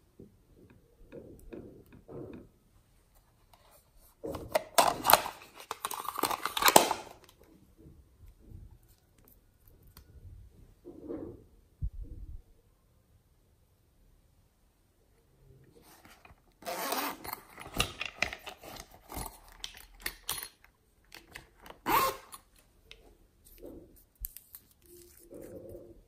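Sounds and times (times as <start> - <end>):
zipper scraping: 16.6 - 17.6, 21.8 - 22.4.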